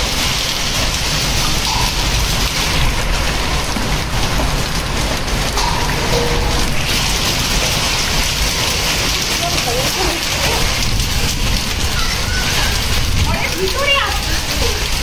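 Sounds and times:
heavy rain and hail on concrete: 0.0 - 15.0.

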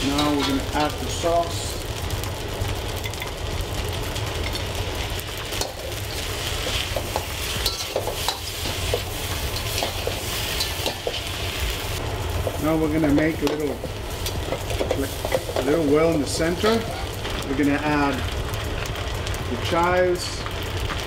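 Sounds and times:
noodles sizzling in skillet: 0.0 - 21.0.

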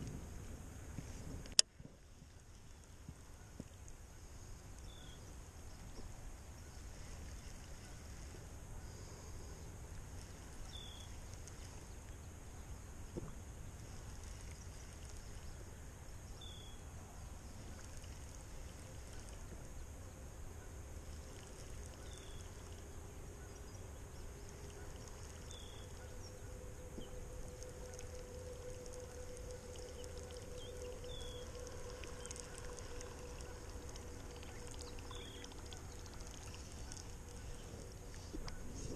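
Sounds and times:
faint steady hum: 0.0 - 38.9
steady low rumble: 0.0 - 38.9
thin high drone: 20.4 - 38.9.

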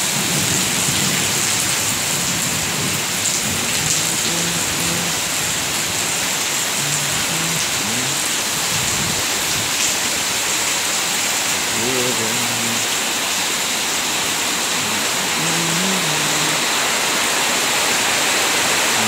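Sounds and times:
heavy rain on paving and foliage: 0.0 - 19.0.

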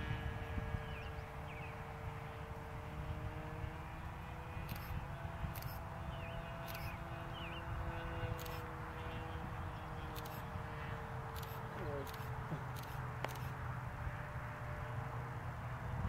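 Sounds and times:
model airplane engine drone: 0.0 - 16.0
wind rumbling on microphone: 0.0 - 16.0
bird chirps: 4.7 - 8.6.

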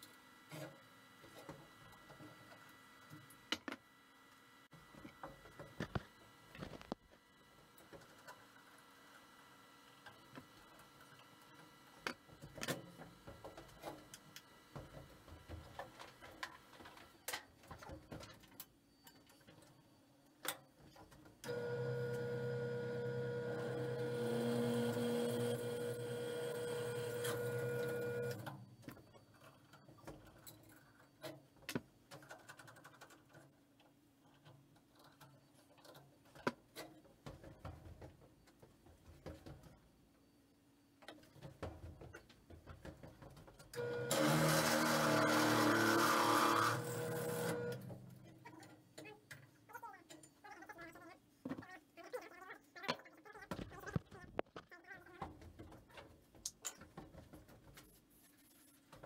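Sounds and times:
welding arc buzzing: 21.5 - 28.4, 43.8 - 48.0.

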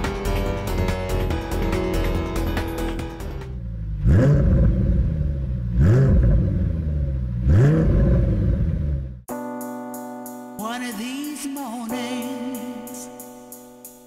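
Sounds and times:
music: 0.0 - 3.6, 9.3 - 14.0
car engine revving: 2.4 - 9.3.

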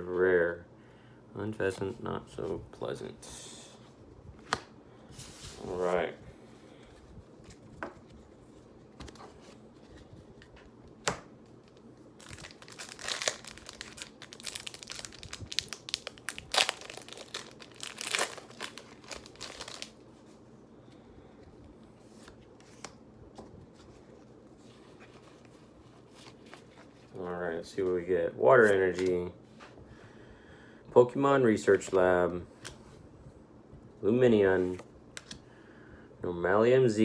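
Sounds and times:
blister pack crinkling and tearing: 11.7 - 20.0.

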